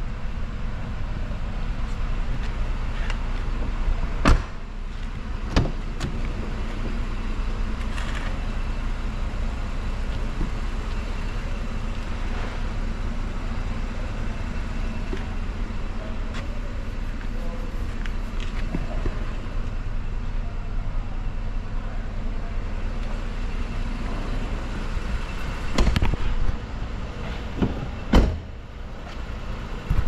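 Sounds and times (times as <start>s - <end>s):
car engine idling: 0.0s - 30.0s
car door thuds: 4.2s - 4.6s, 5.5s - 6.2s, 27.6s - 28.5s.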